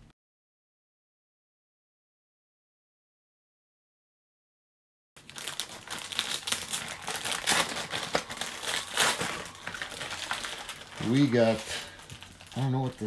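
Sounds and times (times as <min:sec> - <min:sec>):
paper ripping: 0:05.2 - 0:13.0
wrapping paper crinkling: 0:05.2 - 0:13.0.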